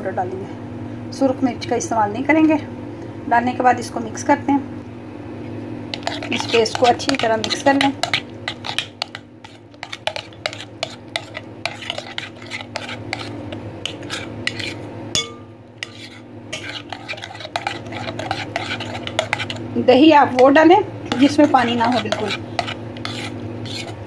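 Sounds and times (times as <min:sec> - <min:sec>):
spoon clinking and scraping bowl: 0:05.9 - 0:19.7, 0:20.3 - 0:24.0.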